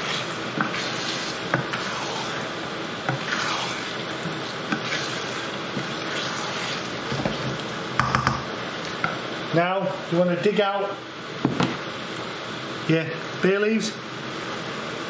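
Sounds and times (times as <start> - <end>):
wooden spatula scraping: 0.0 - 7.7
sauce sizzling in a frying pan: 0.0 - 8.0
spatula knocking against pan: 8.0 - 8.5.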